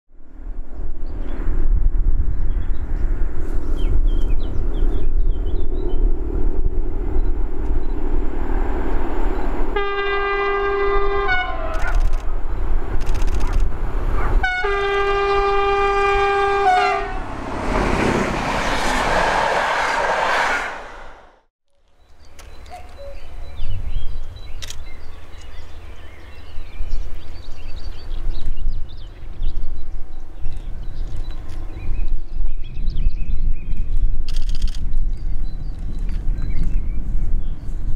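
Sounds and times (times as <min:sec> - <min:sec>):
diesel locomotive rumble: 0:06.0 - 0:21.4
wheel and rail noise: 0:06.0 - 0:23.4
two-tone train horn: 0:09.8 - 0:11.9, 0:14.4 - 0:17.4
birds chirping: 0:21.8 - 0:33.9.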